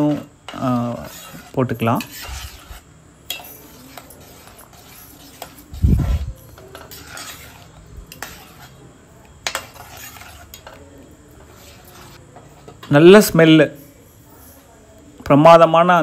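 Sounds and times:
steel ladle clinking in pot: 0:03.2 - 0:05.8.

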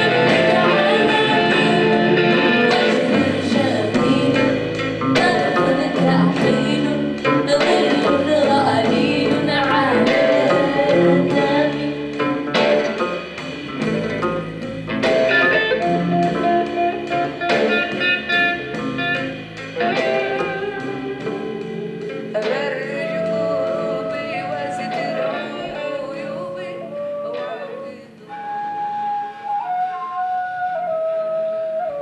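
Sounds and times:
person singing: 0:00.0 - 0:12.3, 0:19.9 - 0:28.6
plucked strings: 0:00.0 - 0:28.4.

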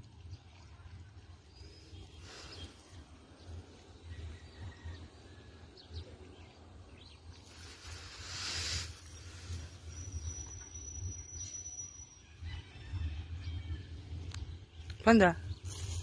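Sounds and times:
faint bird chirps: 0:07.4 - 0:13.0.

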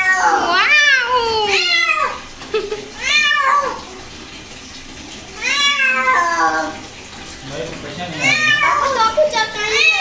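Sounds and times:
cat meowing in protest: 0:00.0 - 0:02.2, 0:03.0 - 0:03.8, 0:05.4 - 0:06.8, 0:08.2 - 0:10.0.

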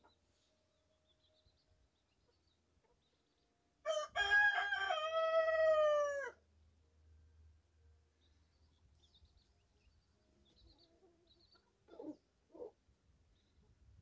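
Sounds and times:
rooster crowing: 0:03.8 - 0:06.4
chicks peeping: 0:08.6 - 0:12.7.

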